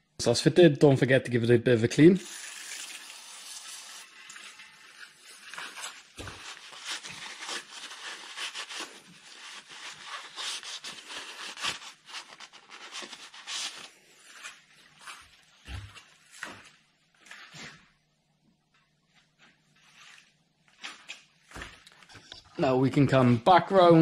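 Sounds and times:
paper towel rubbing and rustling: 4.6 - 16.6.

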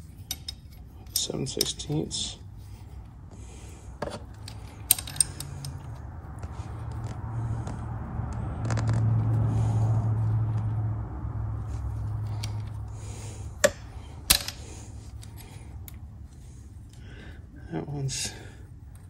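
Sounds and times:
wrench scraping and handling: 0.0 - 7.2, 12.0 - 16.0
steady low hum: 0.0 - 19.0.

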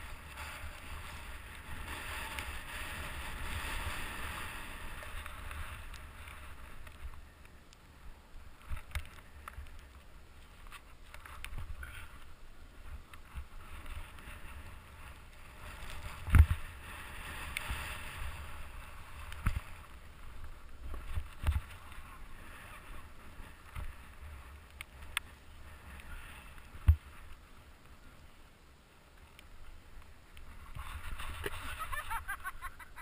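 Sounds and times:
snowboard hissing through powder: 0.1 - 5.8.

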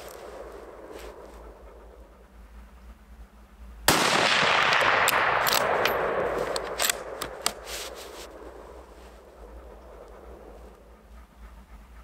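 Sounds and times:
rifle shot: 3.9 - 7.6
rifle bolt clicks: 4.8 - 7.6.

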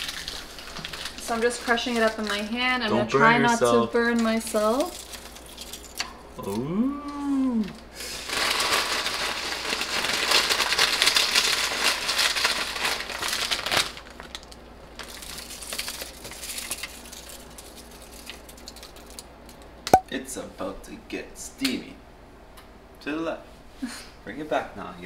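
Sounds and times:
potato chips crunching: 0.0 - 2.4, 8.3 - 19.2.

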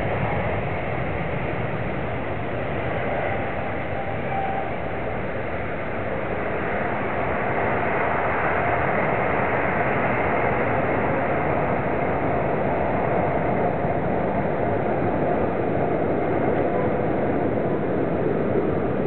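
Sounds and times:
jet engines at takeoff thrust: 0.0 - 19.0.

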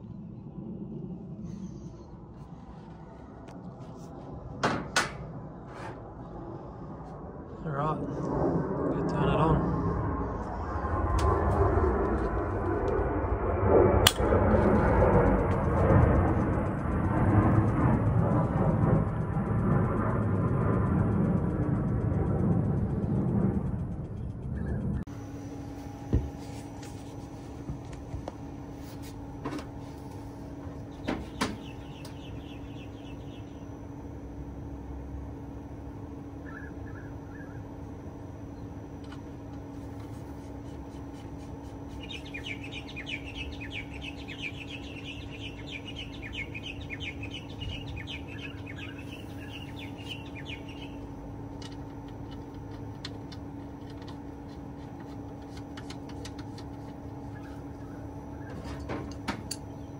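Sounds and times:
steady mechanical hum: 0.0 - 59.9
bird chattering trill: 30.9 - 33.7, 36.4 - 37.7, 41.8 - 51.1.

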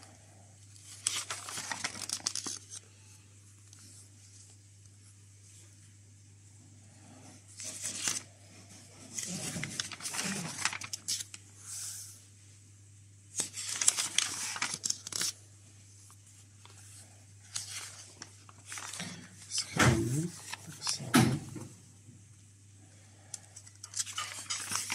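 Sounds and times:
paper pages rustling: 0.8 - 2.8, 7.5 - 12.1, 13.3 - 15.4, 16.0 - 21.1, 23.5 - 24.9.

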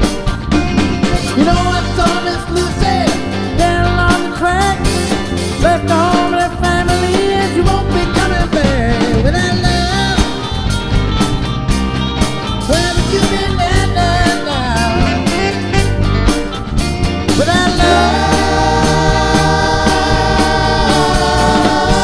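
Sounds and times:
drum kit: 0.0 - 22.0
electric bass: 0.0 - 22.0
electric guitar: 0.0 - 22.0
man singing lead vocal: 1.2 - 10.5, 12.7 - 15.7, 17.3 - 22.0.

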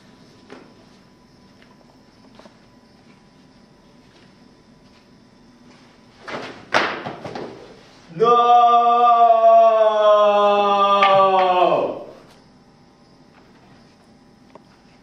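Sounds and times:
scuffle: 0.4 - 8.1
plastic bat smack: 6.3 - 7.6
voice holding long loud note: 8.1 - 12.3.

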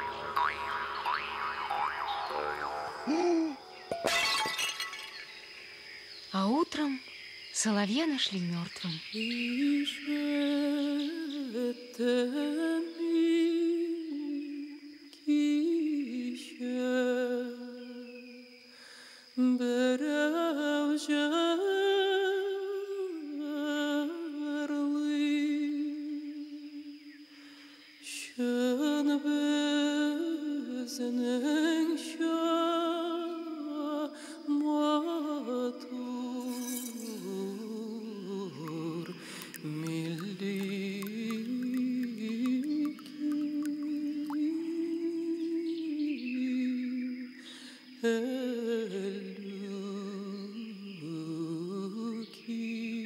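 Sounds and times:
slow hummed melody: 37.0 - 45.8.

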